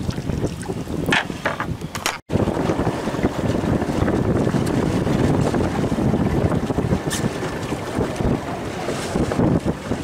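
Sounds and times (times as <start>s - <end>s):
short water splashes: 0.0s - 1.1s
water lapping beside boat: 0.0s - 10.0s
wind rumbling on microphone: 0.0s - 10.0s.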